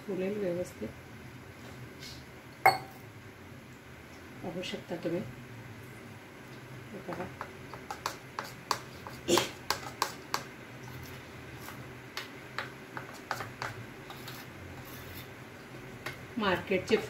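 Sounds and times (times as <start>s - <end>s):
spoon clinking against steel bowl: 2.7s - 3.0s.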